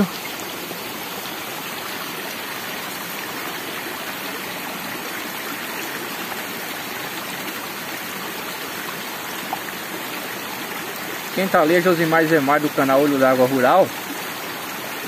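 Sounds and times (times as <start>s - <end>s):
creek rushing over rocks: 0.0s - 15.0s.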